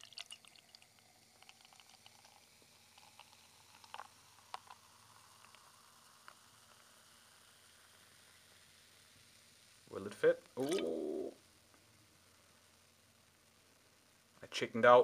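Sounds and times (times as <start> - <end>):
beer pouring into a glass: 0.0 - 8.5, 10.6 - 11.3
fizzing foam crackling: 0.0 - 11.4.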